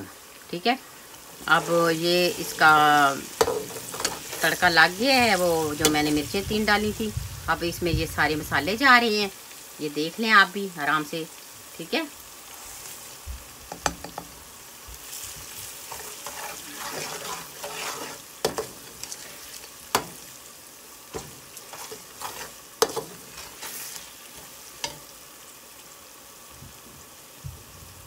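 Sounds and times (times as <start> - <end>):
spices sizzling in hot oil: 0.0 - 28.0
metal spoon scraping pan: 2.3 - 6.2, 15.8 - 20.2, 21.1 - 25.1.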